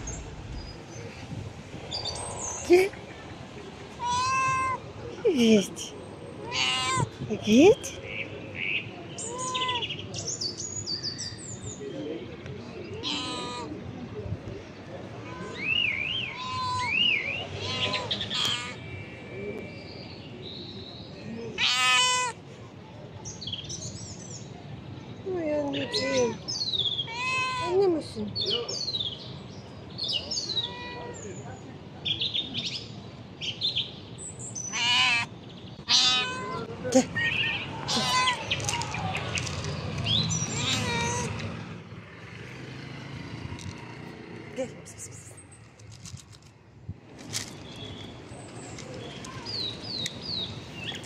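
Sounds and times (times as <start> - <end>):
cat meowing: 4.0 - 4.8, 6.4 - 7.1, 9.2 - 9.8, 13.0 - 13.7, 16.3 - 17.0, 17.6 - 18.8, 21.6 - 22.4, 25.8 - 26.4, 27.1 - 27.9, 30.5 - 31.3, 34.7 - 35.3, 35.9 - 38.5, 40.5 - 41.4.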